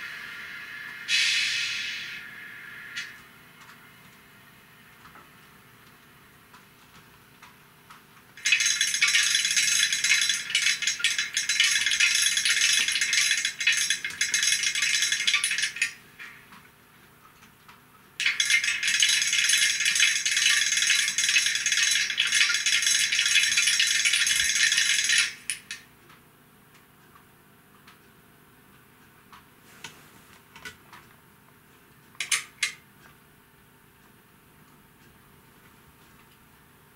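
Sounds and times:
harsh high rattling from small speaker: 8.4s - 16.4s, 18.2s - 25.8s.

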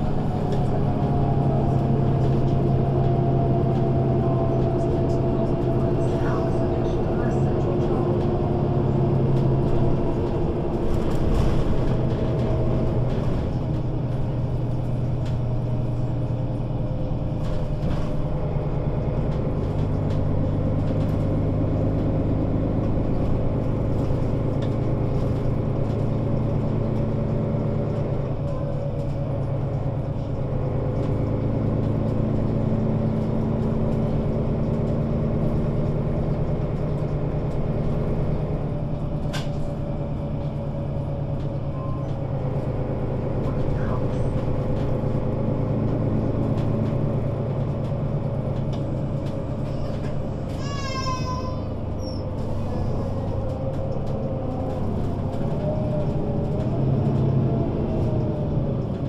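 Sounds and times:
bus engine running: 0.0s - 59.0s.

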